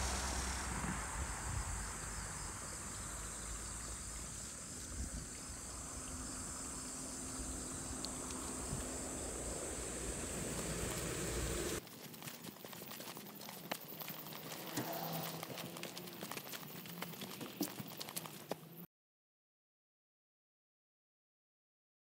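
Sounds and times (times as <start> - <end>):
low rumble: 0.0 - 11.8
insects chirping trill: 0.0 - 18.8.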